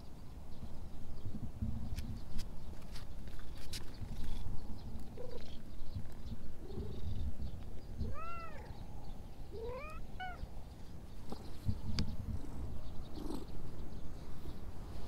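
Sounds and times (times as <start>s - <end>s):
cat chirps: 8.0s - 8.7s, 9.5s - 10.5s
cat meowing: 8.0s - 8.7s, 9.5s - 10.5s.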